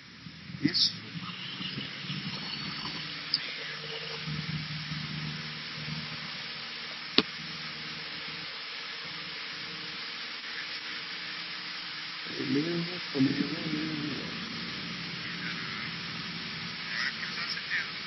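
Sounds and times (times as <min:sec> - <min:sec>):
cabin hiss: 0:00.0 - 0:18.0
airplane cabin engine hum: 0:12.2 - 0:18.0.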